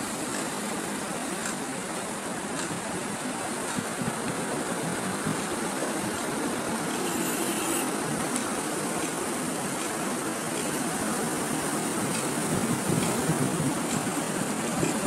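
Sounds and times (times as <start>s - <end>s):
waves washing over rocks: 0.0s - 15.0s.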